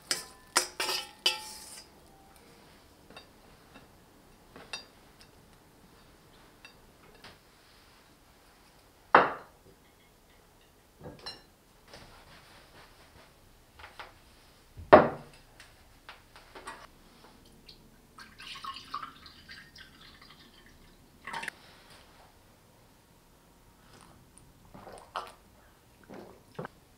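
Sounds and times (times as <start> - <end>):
dishes clinking: 0.0 - 2.4, 3.1 - 5.4, 9.2 - 11.5
dishes knocking on wooden table: 14.8 - 15.3
juice pouring into glass: 18.2 - 20.8.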